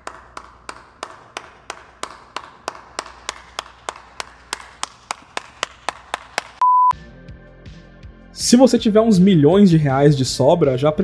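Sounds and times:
person clapping slowly: 0.0 - 6.6.

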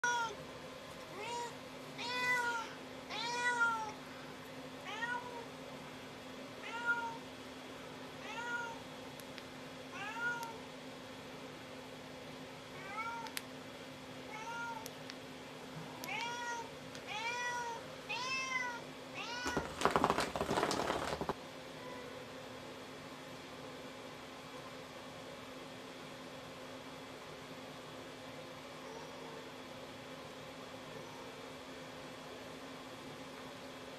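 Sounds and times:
cat meowing: 0.0 - 0.4, 1.1 - 4.0, 8.2 - 8.8.

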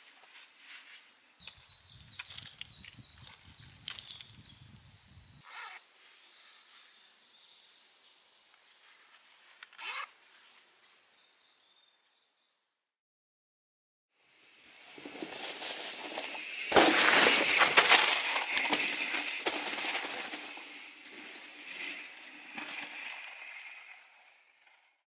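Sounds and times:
bike tyres crunching through leaves: 2.0 - 4.6, 14.4 - 24.7
bike knocks and rattles: 15.0 - 23.8.

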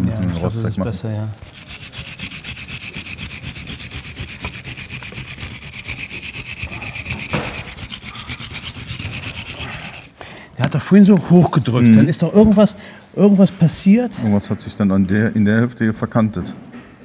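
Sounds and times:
wire brush scrubbing metal: 1.4 - 10.2.

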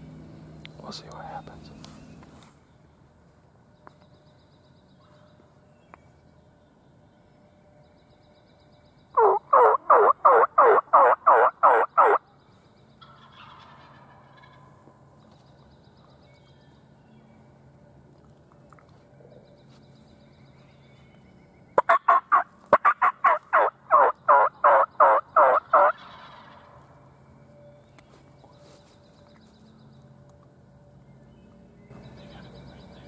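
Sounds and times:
turkey yelps: 9.2 - 12.2, 13.2 - 14.6, 21.8 - 26.7.

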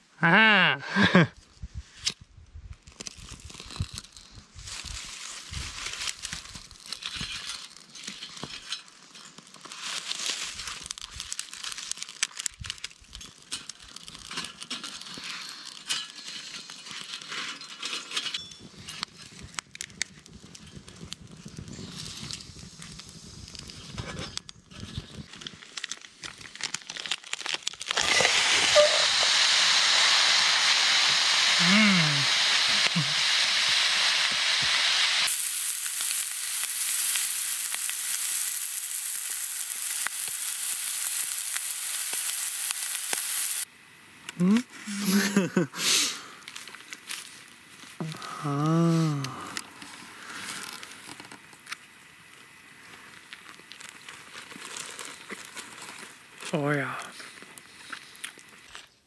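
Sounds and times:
twig fire crackling and popping: 1.3 - 59.0
food frying sizzle: 4.7 - 17.4, 25.6 - 58.9.

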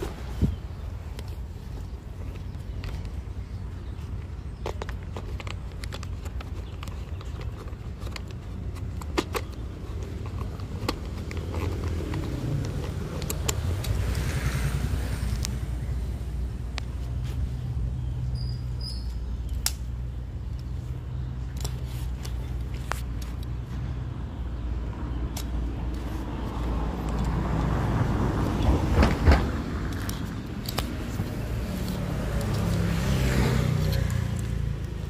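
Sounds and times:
phone rustling against clothing: 0.0 - 18.2, 19.1 - 23.7, 25.2 - 35.0.

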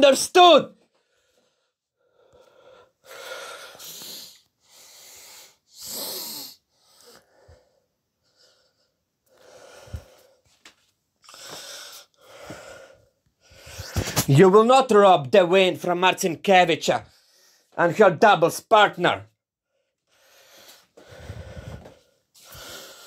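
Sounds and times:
man breathing heavily: 1.0 - 14.2, 17.1 - 17.8, 19.6 - 23.0.

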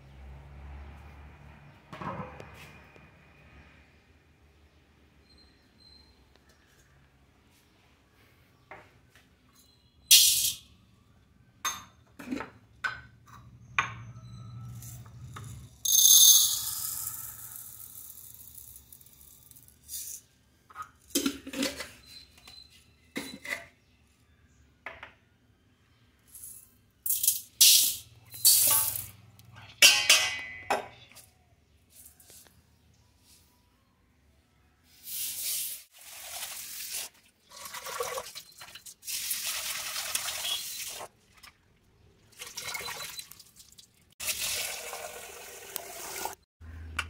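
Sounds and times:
steel cups and lids clinking: 10.1 - 10.6, 14.8 - 22.1, 26.4 - 31.2
grains pouring into steel vessels: 15.9 - 20.3, 35.1 - 41.0.

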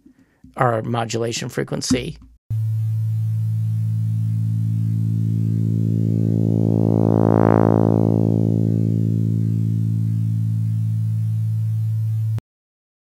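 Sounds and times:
synthesized low tone: 2.6 - 12.4.

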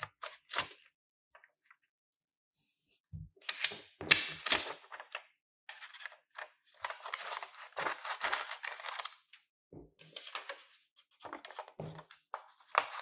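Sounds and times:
paper rustling: 3.5 - 9.2, 10.0 - 13.0.

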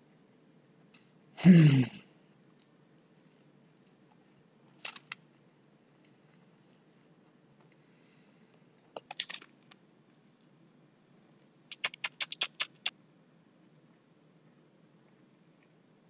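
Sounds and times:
crunching toasted sandwich: 3.8 - 5.2.

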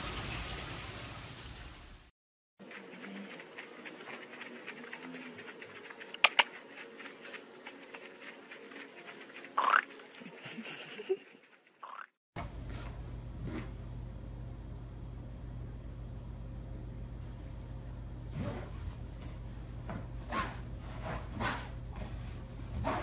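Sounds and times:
puppy claws clicking and tapping: 2.7 - 10.3.

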